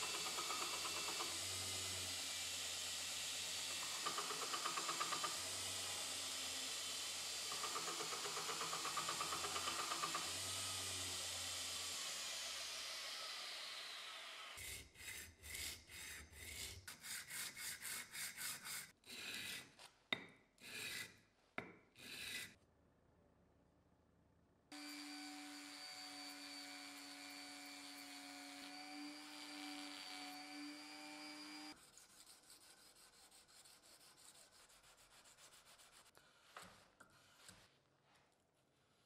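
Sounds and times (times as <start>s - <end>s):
belt grinder rasping on steel: 0.0s - 12.6s
hand sanding strokes: 14.6s - 19.8s, 31.7s - 37.8s.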